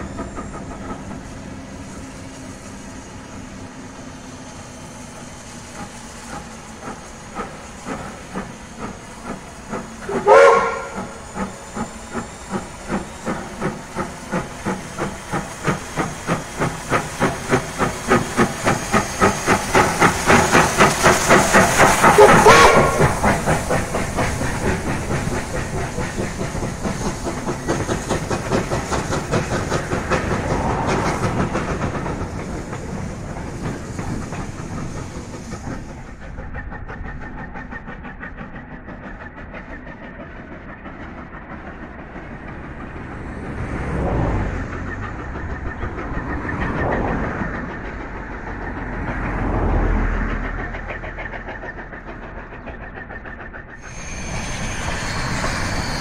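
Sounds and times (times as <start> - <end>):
steam locomotive exhaust chuffs: 0.0 - 56.0
steam whistle blast: 10.1 - 11.2, 22.1 - 23.2.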